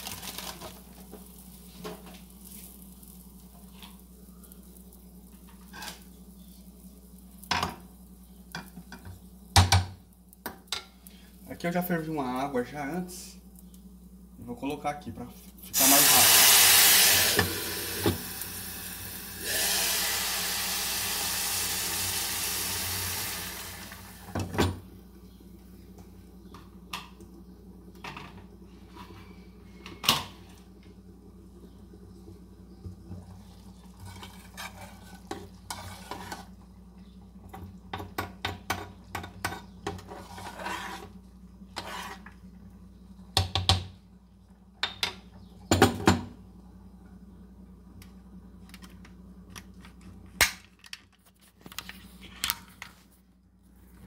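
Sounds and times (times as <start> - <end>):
faint steady hum: 0.0 - 54.0
water hissing on hot pan: 15.7 - 24.4
water pouring from kettle: 15.8 - 24.2.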